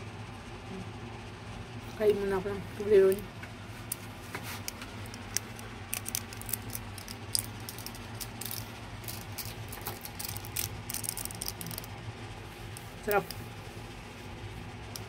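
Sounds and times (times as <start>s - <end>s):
chocolate crunching while chewing: 4.6s - 13.4s.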